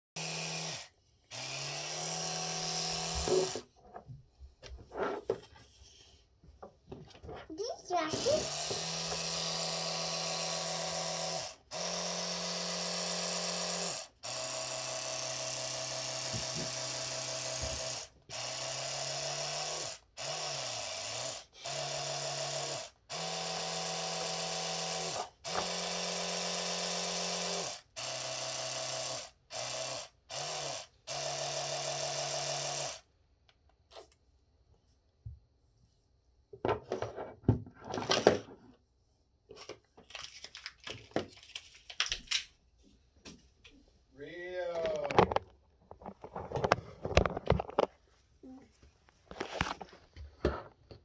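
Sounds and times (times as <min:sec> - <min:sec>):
electric toothbrush buzzing: 0:00.2 - 0:03.6, 0:08.0 - 0:33.0.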